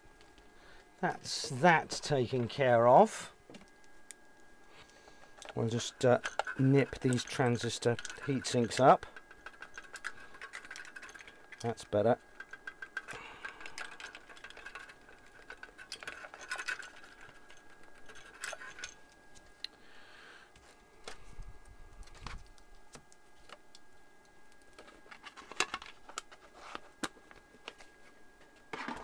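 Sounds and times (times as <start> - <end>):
small tools clicking and tapping: 4.8 - 19.8.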